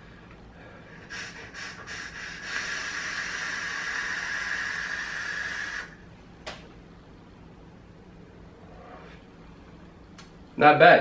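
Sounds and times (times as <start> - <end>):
air hissing over sizzling coil: 1.0 - 6.0.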